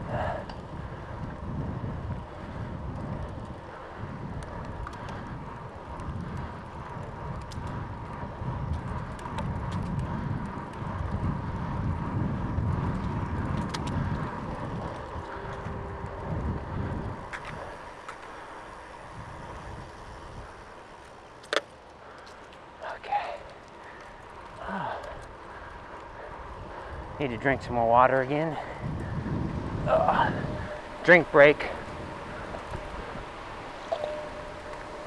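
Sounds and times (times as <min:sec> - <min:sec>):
wind buffeting microphone: 0:00.0 - 0:21.4, 0:22.0 - 0:35.0
faint clicks: 0:04.4 - 0:05.4, 0:21.0 - 0:22.8.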